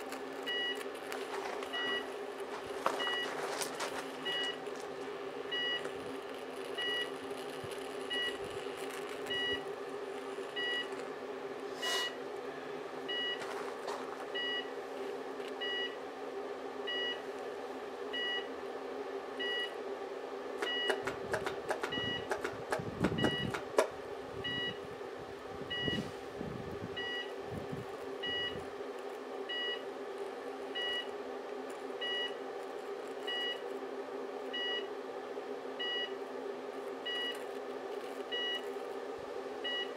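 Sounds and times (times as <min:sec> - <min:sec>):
high-voltage arcing crackle: 0:00.0 - 0:11.2
electrical hum and buzz: 0:00.0 - 0:39.9.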